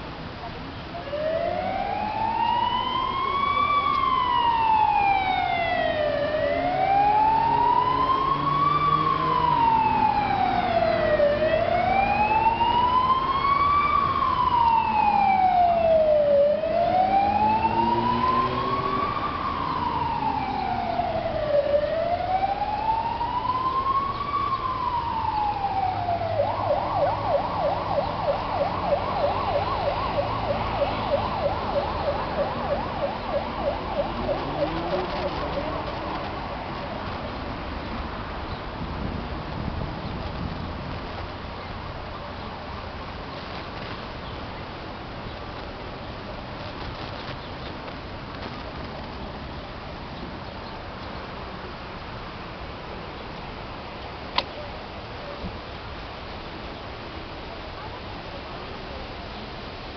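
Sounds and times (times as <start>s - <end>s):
emergency siren wailing: 0.9s - 37.4s
siren fast yelp: 1.0s - 35.9s.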